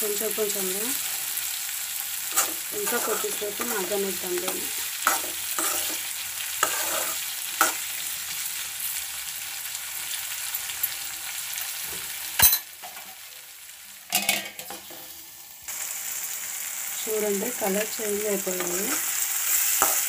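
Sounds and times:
vegetables sizzling in oil: 0:00.0 - 0:20.0
spoon scraping and tapping pan: 0:02.3 - 0:06.0, 0:06.6 - 0:07.8, 0:19.8 - 0:20.0.

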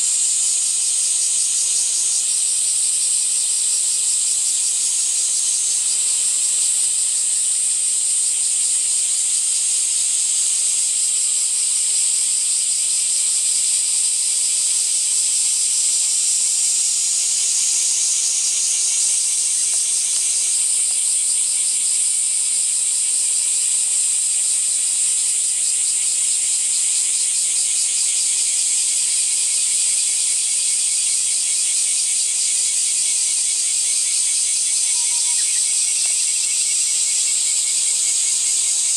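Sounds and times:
insects shrilling: 0:34.8 - 0:38.9.

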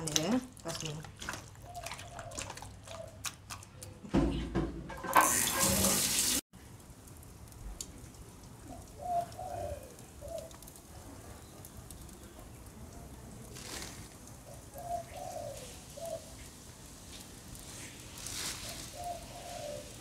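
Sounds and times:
wet squelching of hands in meat: 0:00.0 - 0:04.1
dove cooing: 0:01.6 - 0:03.2, 0:08.7 - 0:10.5, 0:14.5 - 0:16.4, 0:18.4 - 0:20.0
tap running into sink: 0:04.6 - 0:06.4.

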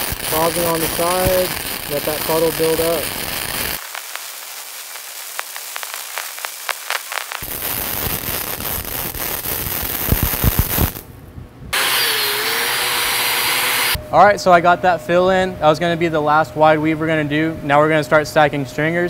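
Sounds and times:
welding arc crackling and popping: 0:00.0 - 0:11.1
angle grinder whining: 0:11.8 - 0:14.0.

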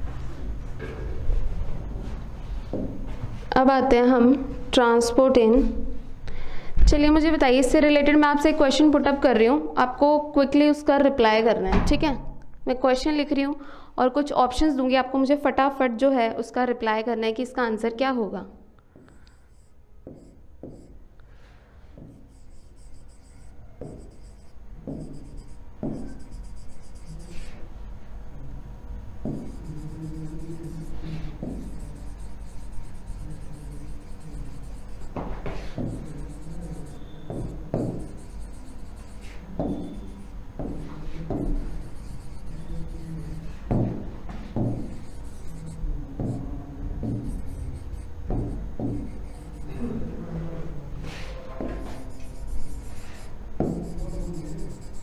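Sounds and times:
stylus tapping and scratching on glass: 0:22.0 - 0:27.5, 0:29.3 - 0:43.9, 0:44.6 - 0:49.8, 0:51.6 - 0:55.0.

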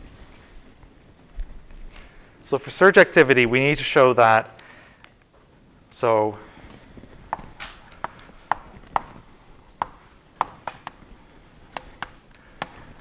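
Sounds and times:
chalk tapping and scraping: 0:07.2 - 0:13.0.

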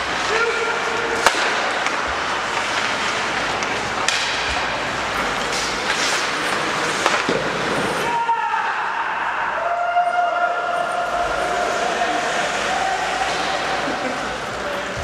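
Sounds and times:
skates scraping on ice: 0:00.0 - 0:08.2, 0:11.2 - 0:15.0
stick hitting puck: 0:01.1 - 0:04.7, 0:05.5 - 0:07.8.

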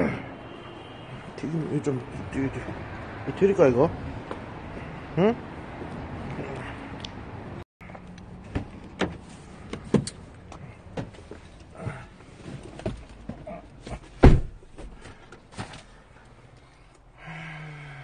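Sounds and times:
heavy thump: 0:13.9 - 0:15.1.

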